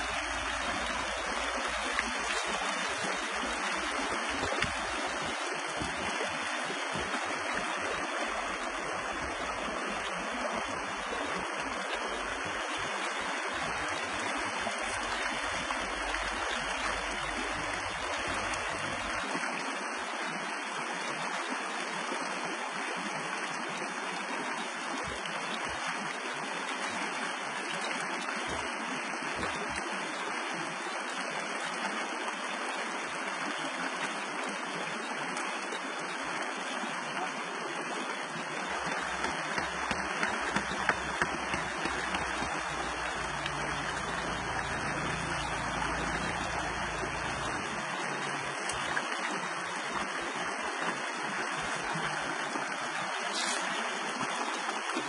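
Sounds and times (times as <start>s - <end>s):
stream rushing over rocks: 0.0s - 55.0s.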